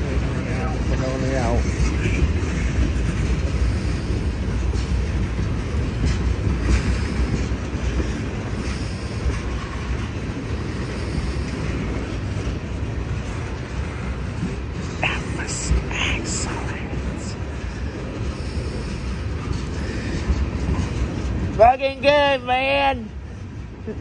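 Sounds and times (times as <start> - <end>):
train wheels rumbling on rails: 0.0 - 24.0
wheels clicking over rail joints: 0.5 - 15.0.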